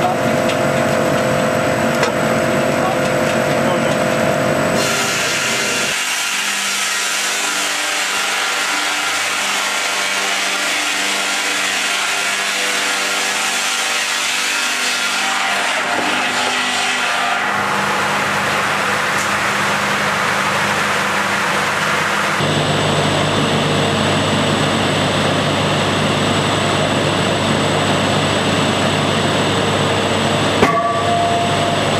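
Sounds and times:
saw cutting log: 4.8 - 22.4
motor hum: 17.6 - 31.9.

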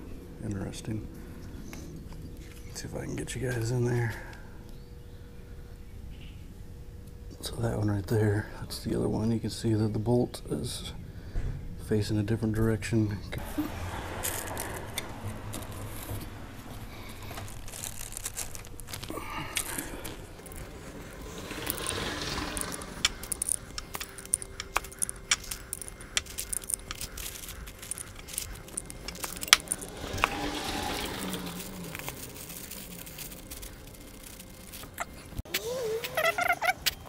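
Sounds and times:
handling rustle: 13.4 - 37.0.

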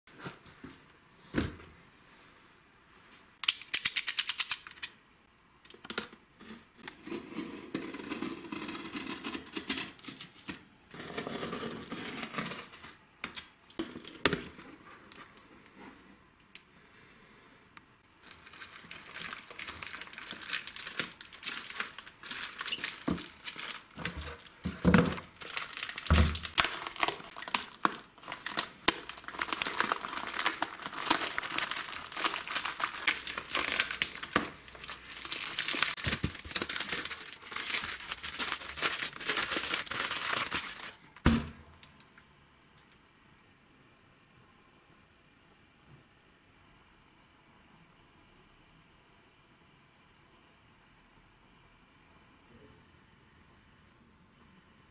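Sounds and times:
quick clicks: 3.4 - 4.8
plastic film crinkling: 18.2 - 42.0.

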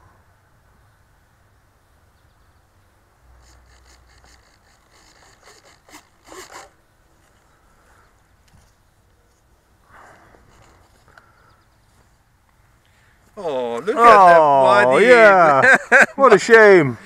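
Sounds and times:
rustles and scrapes near microphone: 8.4 - 11.1.

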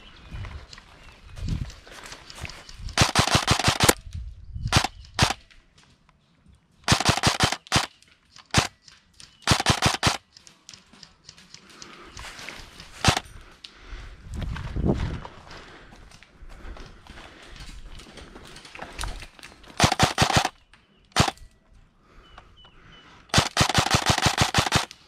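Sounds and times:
airsoft rifle shots cracking: 3.0 - 4.0, 4.7 - 5.4, 6.9 - 7.9, 8.5 - 8.8, 9.4 - 10.2, 19.8 - 20.6, 21.2 - 21.4, 23.3 - 25.0.

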